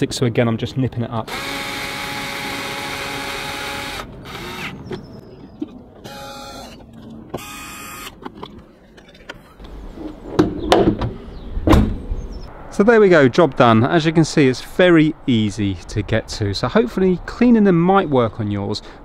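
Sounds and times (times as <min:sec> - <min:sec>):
cordless drill driving screw: 0:01.3 - 0:05.0, 0:06.0 - 0:06.8
car bonnet thump: 0:10.4 - 0:12.2.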